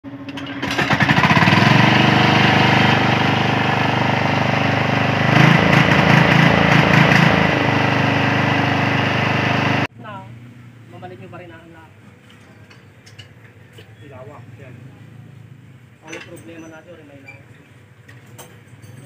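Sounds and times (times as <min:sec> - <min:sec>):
diesel engine running: 0:00.1 - 0:09.9.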